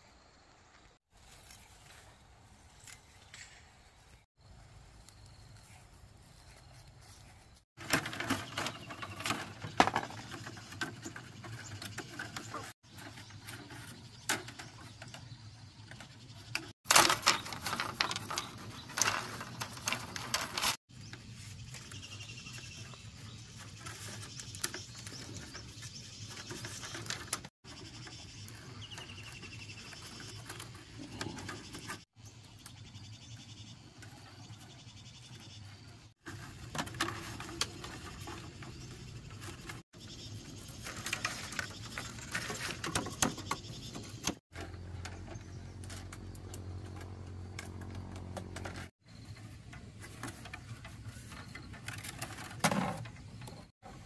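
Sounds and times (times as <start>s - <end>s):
bamboo strips clicking and rustling: 7.8s - 22.1s, 22.8s - 32.0s, 36.2s - 39.8s, 40.4s - 54.0s.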